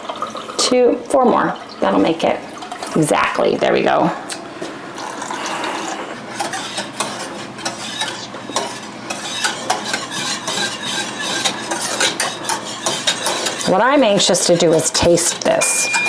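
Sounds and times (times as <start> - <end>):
utensil stirring creamy mixture: 6.1 - 16.0
utensil scraping and clicking on pan: 6.3 - 16.0.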